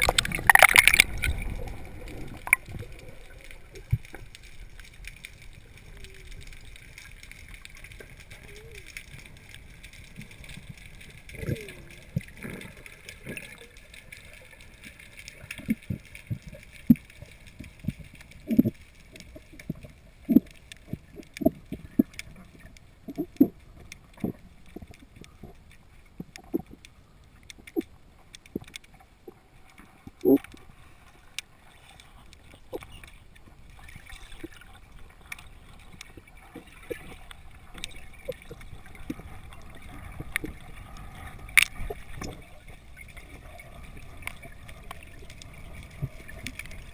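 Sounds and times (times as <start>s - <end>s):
faint steady hiss: 0.0s - 46.9s
underwater knocks and gurgles: 0.0s - 46.9s.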